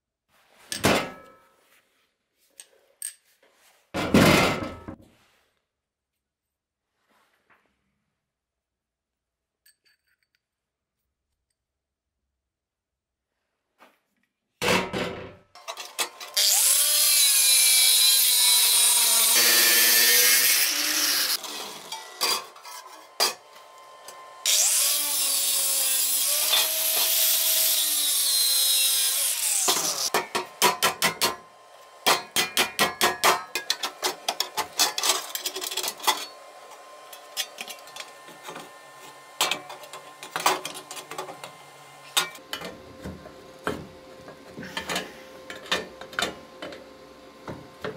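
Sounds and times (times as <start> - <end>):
angle grinder cutting steel: 15.6 - 42.4.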